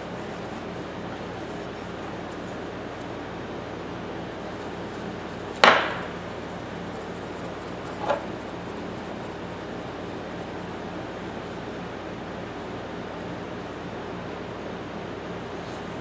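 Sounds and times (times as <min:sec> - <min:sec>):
metal knock: 0:05.6 - 0:06.2.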